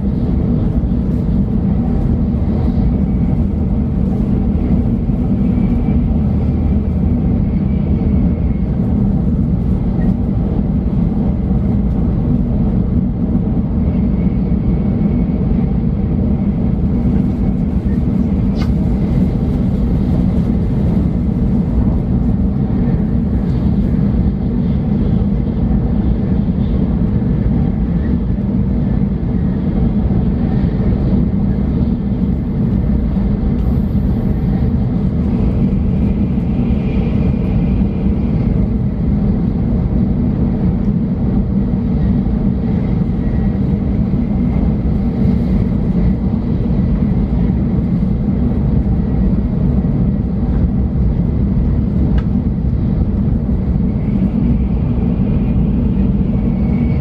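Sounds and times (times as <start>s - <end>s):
train cabin low rumble: 0.0s - 57.0s
brief click: 18.6s - 18.8s.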